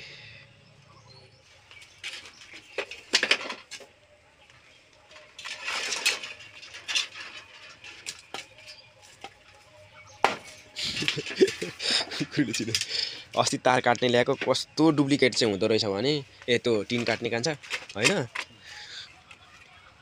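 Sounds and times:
knife chopping bamboo: 10.2s - 10.5s.

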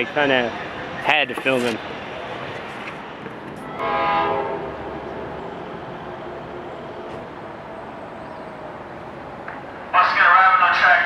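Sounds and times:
steady background rumble: 0.0s - 11.0s
distant train horn blast: 3.6s - 6.2s.

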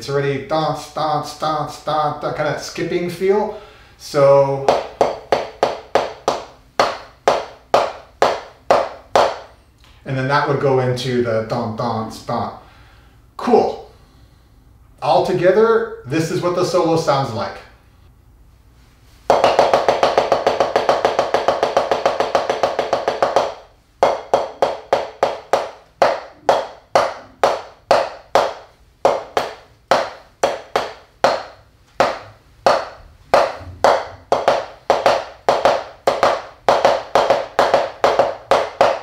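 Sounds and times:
sticks striking drum practice pad: 4.6s - 9.5s, 19.3s - 39.0s.

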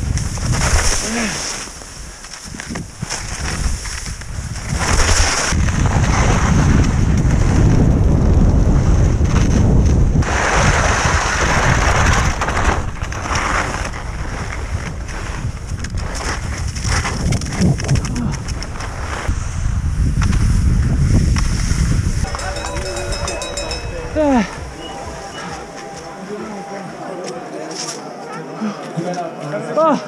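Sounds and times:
skis sliding on snow: 0.2s - 7.8s, 10.2s - 17.6s, 18.6s - 19.6s, 20.2s - 23.3s
wind buffeting microphone: 2.5s - 25.7s.

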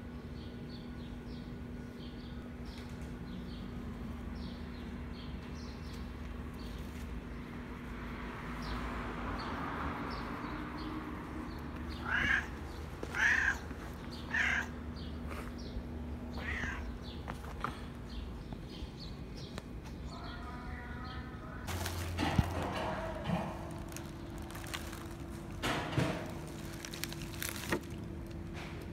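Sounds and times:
small birds chirping: 0.0s - 28.9s
cat meowing: 11.9s - 14.8s, 16.3s - 17.0s.

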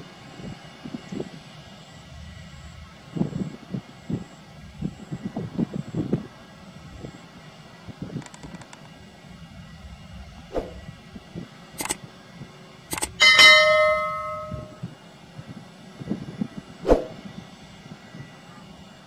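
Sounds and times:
airliner taxiing rumble: 0.0s - 19.0s
sharp clicks: 8.2s - 8.9s, 11.8s - 12.0s, 12.9s - 13.2s
bright bell chime: 13.2s - 14.9s.

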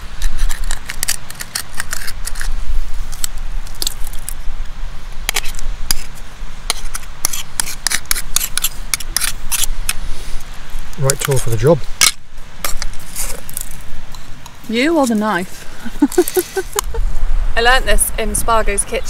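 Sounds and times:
knife scraping shell: 0.0s - 4.4s, 5.3s - 10.1s, 11.0s - 15.2s.

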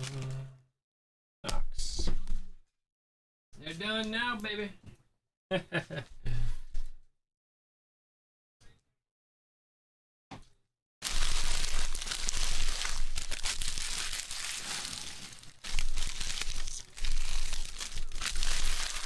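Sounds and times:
foil wrappers crumpling: 11.0s - 19.0s.

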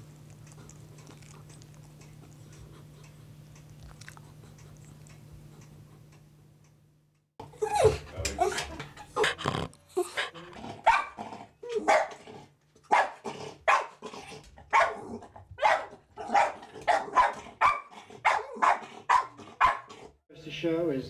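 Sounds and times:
dog barking: 10.8s - 12.2s, 12.9s - 14.0s, 14.7s - 20.0s.

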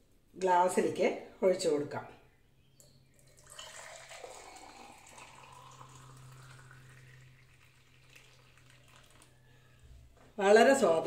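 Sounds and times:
coffee pouring into a glass: 3.0s - 9.8s.

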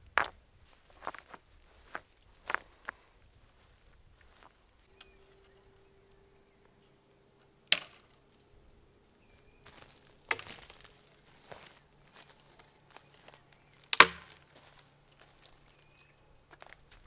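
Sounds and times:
faint steady hum: 0.0s - 17.0s
rustling scrapes: 9.3s - 17.0s.

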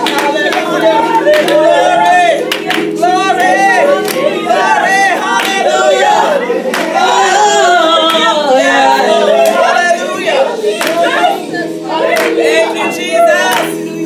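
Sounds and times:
hand-clapping: 0.0s - 4.4s, 5.4s - 5.7s, 6.7s - 7.1s, 10.8s - 11.3s, 12.1s - 12.5s, 13.5s - 13.8s
group singing gospel: 0.0s - 14.0s.

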